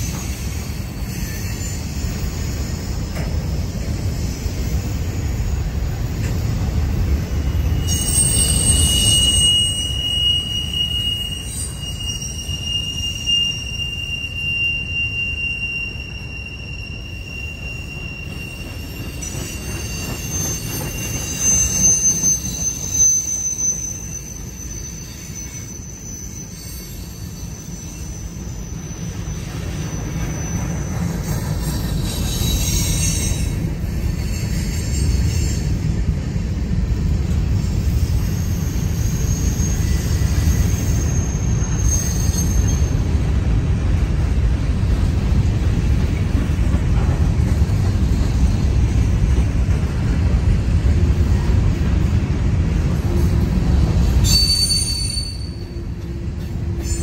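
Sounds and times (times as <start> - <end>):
high-pitched wheel squeal: 0.0 - 36.0, 37.6 - 43.3, 53.2 - 57.0
freight train wheels rumbling on rails: 0.0 - 57.0.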